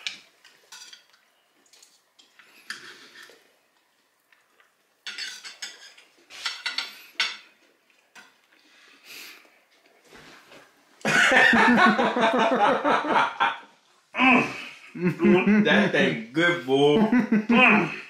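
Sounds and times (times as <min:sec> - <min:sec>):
knife and fork scraping on plate: 0:02.5 - 0:03.4, 0:05.1 - 0:07.4.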